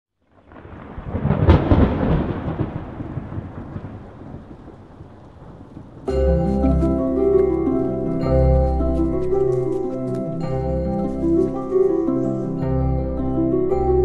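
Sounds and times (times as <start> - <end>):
deep thunder-like rumble: 0.5 - 7.2
music with sustained notes: 6.1 - 14.0.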